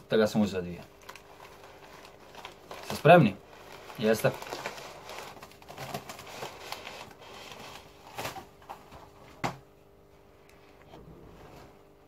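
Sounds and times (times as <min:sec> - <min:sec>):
plastic bag crackling: 0:00.3 - 0:09.2
paper bag rustling and crinkling: 0:00.8 - 0:09.4.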